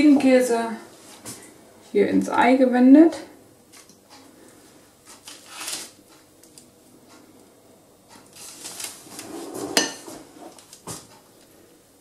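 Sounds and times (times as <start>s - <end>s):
glass bowl clink: 9.7s - 10.1s.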